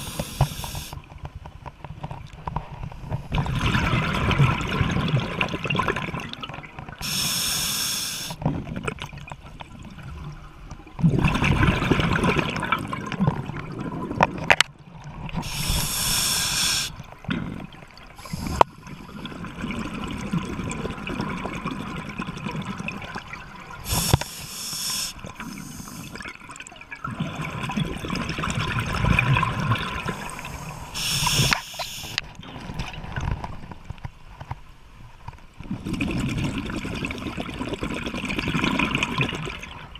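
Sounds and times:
regulator inhalation hiss: 0:00.0 - 0:01.0, 0:07.0 - 0:08.4, 0:15.4 - 0:17.0, 0:18.2 - 0:18.6, 0:23.9 - 0:26.1, 0:30.2 - 0:32.2
gurgling exhaled bubbles: 0:03.3 - 0:06.6, 0:11.0 - 0:14.5, 0:15.1 - 0:31.6, 0:35.6 - 0:39.9.

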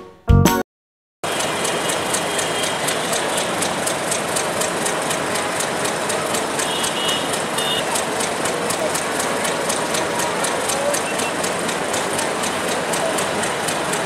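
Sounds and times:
piano intro music: 0:00.0 - 0:00.6
diesel train running: 0:01.2 - 0:14.0
light regular ticking: 0:01.3 - 0:14.0.

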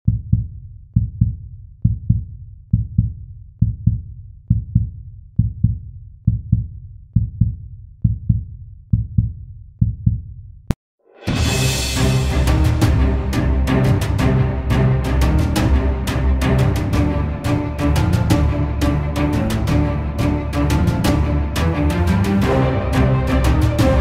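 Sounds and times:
heartbeat thumps: 0:00.0 - 0:10.4.

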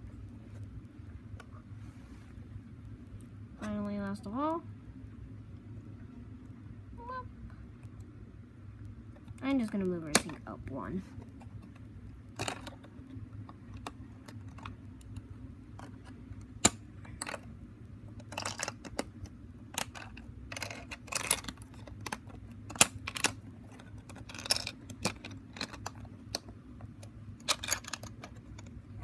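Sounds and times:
plastic bricks clicking and snapping: 0:15.8 - 0:17.5, 0:18.2 - 0:28.8.

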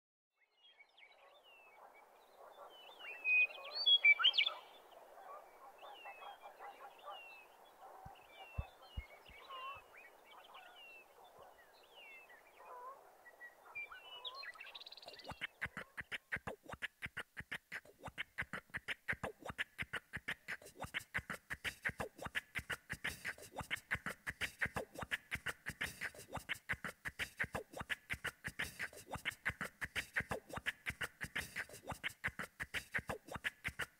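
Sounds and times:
bird-like whistles and chirps: 0:00.6 - 0:15.6
beatboxed rhythm: 0:15.1 - 0:33.9.

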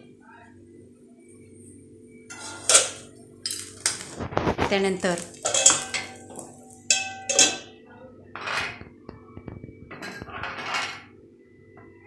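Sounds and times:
metal scrape: 0:02.3 - 0:07.6, 0:08.4 - 0:08.8, 0:10.0 - 0:11.1
metal kitchenware clinking: 0:02.3 - 0:07.8.

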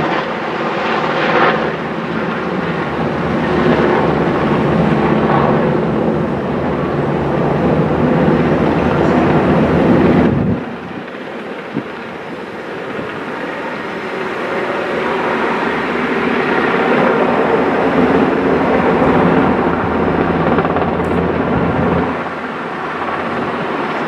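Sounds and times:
helicopter flying overhead: 0:00.0 - 0:24.0.

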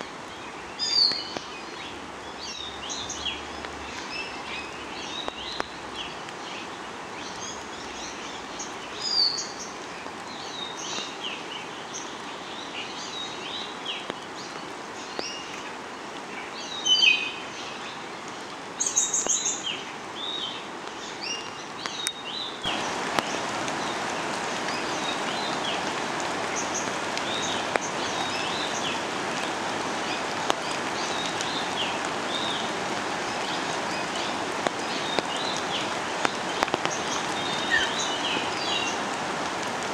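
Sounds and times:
rushing water: 0:00.0 - 0:39.9
bird chirps and calls: 0:37.0 - 0:39.0.

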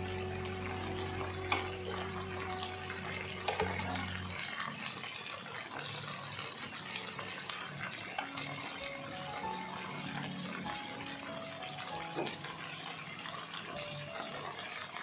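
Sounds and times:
chicken sizzling in grill pan: 0:00.0 - 0:15.0.

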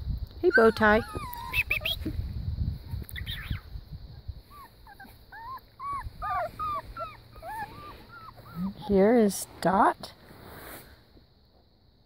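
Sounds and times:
puppy whimpering: 0:00.4 - 0:02.0, 0:04.5 - 0:09.1.

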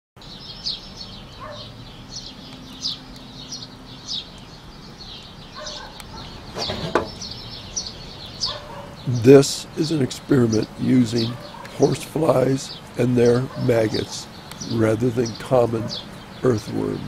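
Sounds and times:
birds chirping: 0:00.2 - 0:17.0.

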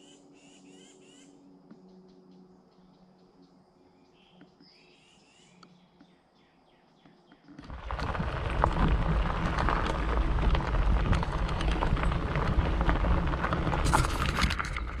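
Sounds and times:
leaves and stems crackling: 0:07.6 - 0:15.0
steady low rumble: 0:07.6 - 0:15.0.

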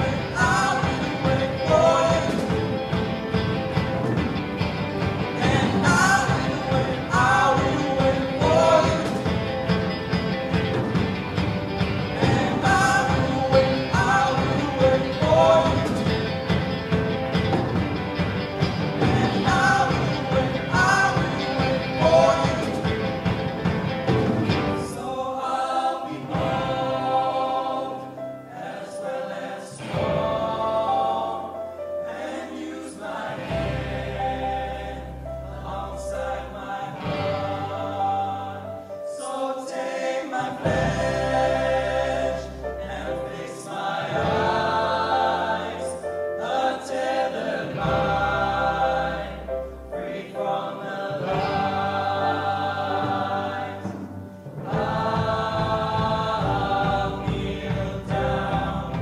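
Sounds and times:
male voices singing in harmony: 0:00.0 - 0:03.4, 0:05.3 - 0:09.8, 0:12.2 - 0:16.5, 0:19.0 - 0:23.4, 0:24.4 - 0:59.0
acoustic guitars: 0:00.0 - 0:25.0.

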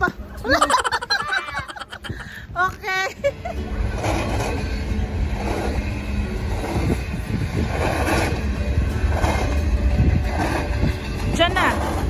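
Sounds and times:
freight train rumbling past: 0:03.4 - 0:12.0.

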